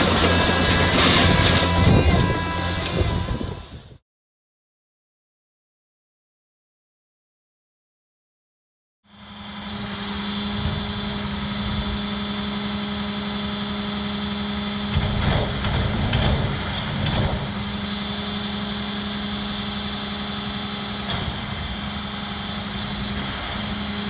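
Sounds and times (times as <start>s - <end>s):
steady engine drone: 0.0s - 4.0s, 9.1s - 24.0s.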